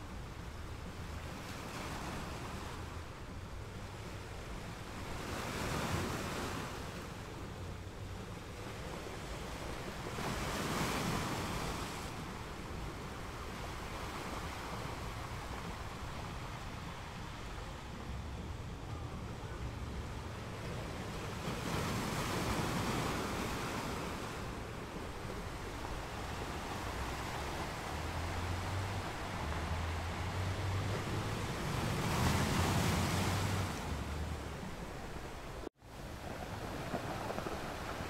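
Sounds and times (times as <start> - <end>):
small waves breaking on beach: 0.0 - 38.0.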